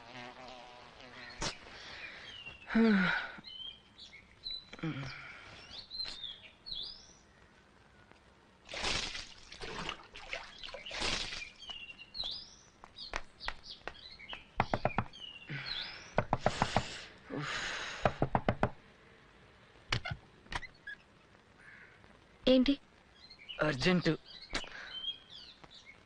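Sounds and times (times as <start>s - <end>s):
small birds chirping: 0.0s - 26.0s
knocking on wooden door: 14.6s - 15.1s, 18.0s - 18.8s.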